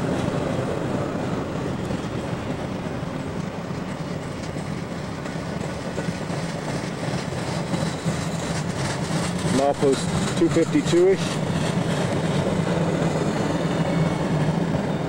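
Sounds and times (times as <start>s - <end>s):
steel wheels rolling on rails: 0.0s - 15.0s
wheels clacking over rail joints: 0.0s - 15.0s.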